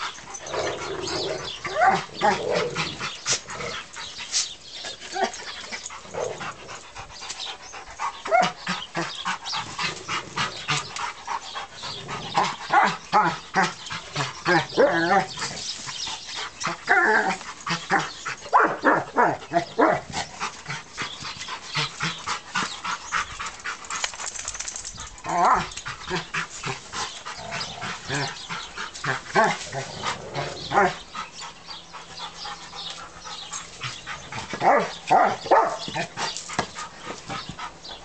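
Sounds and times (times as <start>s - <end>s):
dogs whining: 0.1s - 4.0s
dogs barking: 16.8s - 20.2s, 33.3s - 36.8s.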